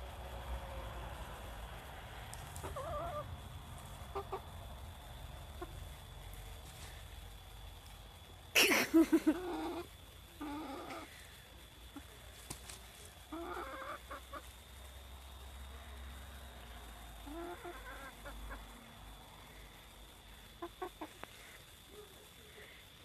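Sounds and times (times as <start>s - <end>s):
hen clucking: 2.6s - 4.6s, 9.2s - 11.1s, 13.3s - 14.5s, 17.2s - 18.7s, 20.6s - 21.2s.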